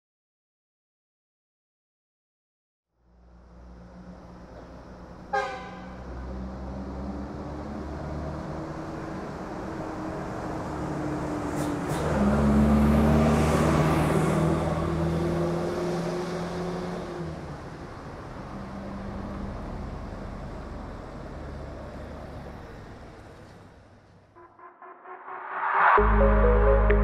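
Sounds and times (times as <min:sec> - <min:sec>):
road traffic: 0:03.0 - 0:27.0
car horn toot: 0:05.3 - 0:05.9, 0:24.4 - 0:25.4.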